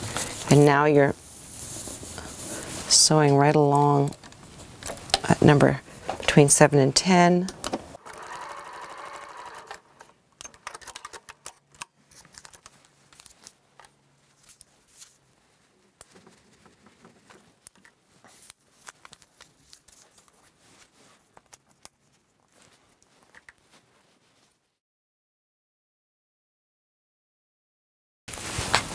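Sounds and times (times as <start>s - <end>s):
fabric rustling: 0.0s - 3.2s, 12.0s - 24.8s, 28.3s - 28.9s
sewing machine stitching: 8.0s - 11.4s.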